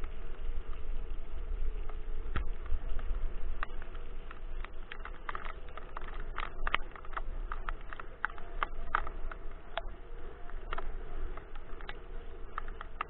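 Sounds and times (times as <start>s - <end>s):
scooter rolling over leafy path: 0.0s - 13.0s
sharp clicks and rattles: 1.9s - 13.0s.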